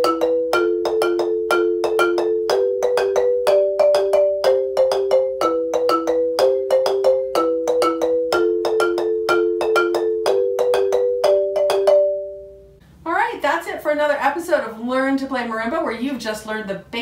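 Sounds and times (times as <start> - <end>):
wooden marimbas playing: 0.0 - 12.6.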